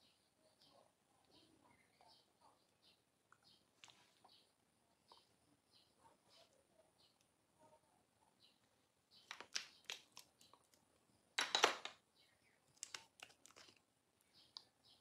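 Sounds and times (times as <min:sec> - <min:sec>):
containers clicking: 0:09.3 - 0:10.8.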